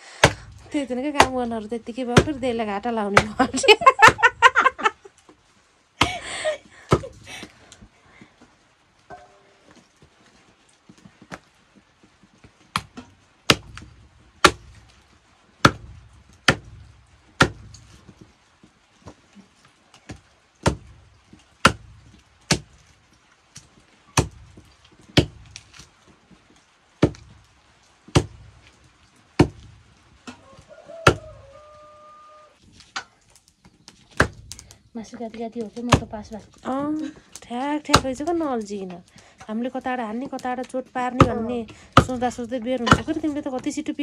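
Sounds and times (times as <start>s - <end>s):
knife chopping meat and bone: 31.0s - 31.4s, 41.2s - 42.3s.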